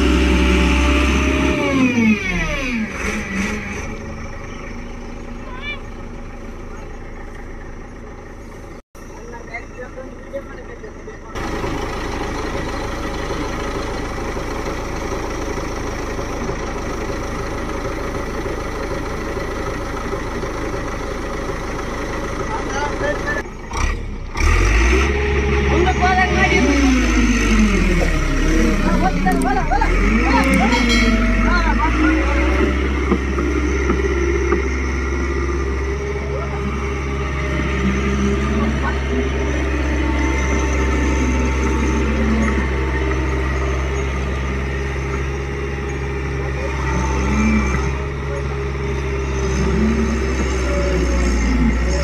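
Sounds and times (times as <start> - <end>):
diesel engine running: 0.0 - 52.0.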